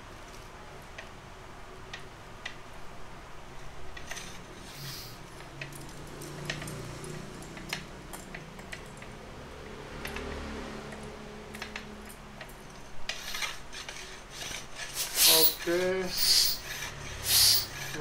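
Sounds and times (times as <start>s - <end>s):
pump parts clicking and rattling: 11.0s - 18.0s.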